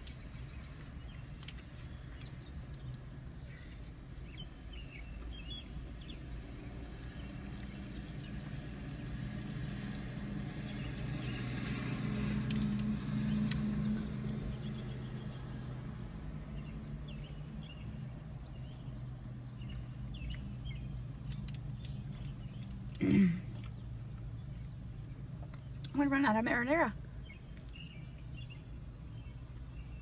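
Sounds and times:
vehicle passing: 0:06.0 - 0:29.9.

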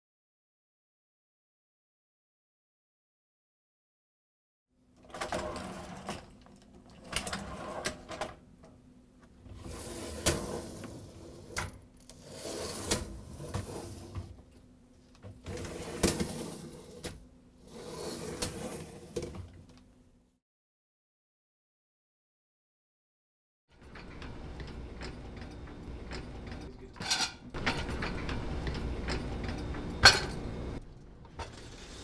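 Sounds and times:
dishwasher racks rolling and rattling: 0:05.0 - 0:08.4, 0:09.5 - 0:14.4, 0:15.4 - 0:17.2, 0:23.8 - 0:32.0.

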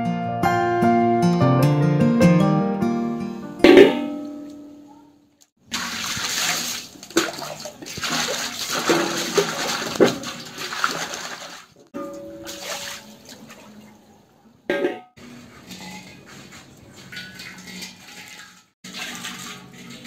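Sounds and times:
knocks against metal pan: 0:03.6 - 0:04.7, 0:14.7 - 0:15.1
water splashing in metal pan: 0:05.6 - 0:15.0, 0:15.6 - 0:20.0.

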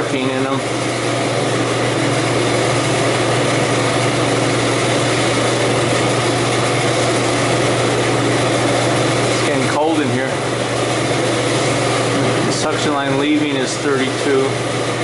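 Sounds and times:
fan air whoosh: 0:00.0 - 0:15.0
low motor hum: 0:00.0 - 0:15.0.

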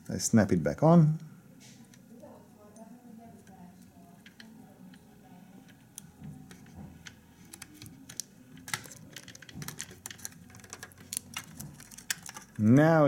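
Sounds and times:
fingers clicking metal frame: 0:03.4 - 0:12.9.

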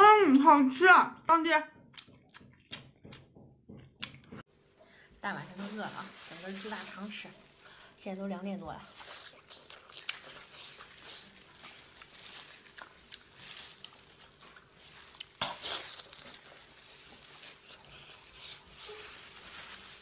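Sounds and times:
plastic glove crinkling: 0:05.0 - 0:20.0
wet food squeezed and chewed: 0:08.8 - 0:20.0.

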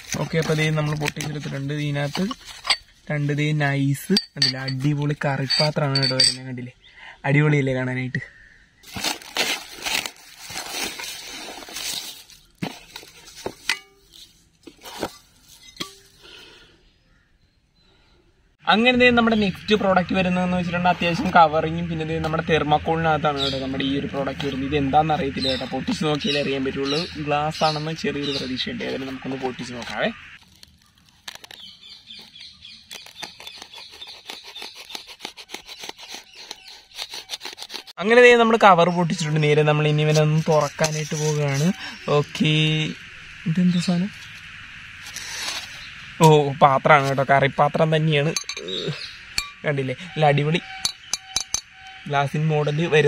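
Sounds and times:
glass plates clinking together: 0:04.1 - 0:06.5, 0:48.4 - 0:48.7, 0:49.4 - 0:49.6, 0:50.7 - 0:51.7
plastic wrap crinkling: 0:08.8 - 0:14.2, 0:30.4 - 0:38.0
knife scratching along foam: 0:28.3 - 0:38.0.

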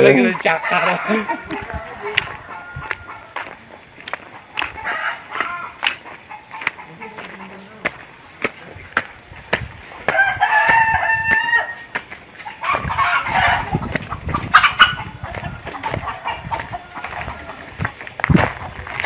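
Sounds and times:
chickens clucking: 0:00.0 - 0:19.0
rooster crowing: 0:00.3 - 0:03.6, 0:04.8 - 0:05.8, 0:10.1 - 0:12.0, 0:15.7 - 0:17.8.

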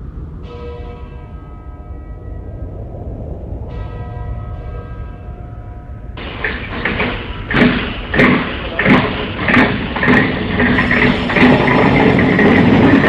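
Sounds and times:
clattering noise: 0:06.2 - 0:13.0
mechanical knocks: 0:06.2 - 0:13.0.

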